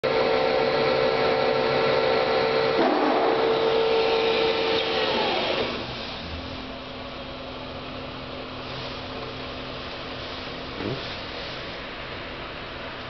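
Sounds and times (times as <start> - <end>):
lathe spindle whining: 0.1 - 6.0.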